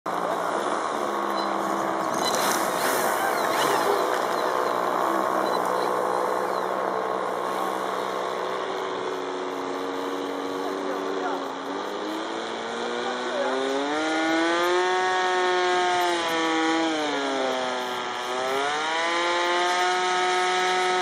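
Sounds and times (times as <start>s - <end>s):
faint voices: 0.1s - 13.9s
model airplane engine idling: 0.1s - 14.9s.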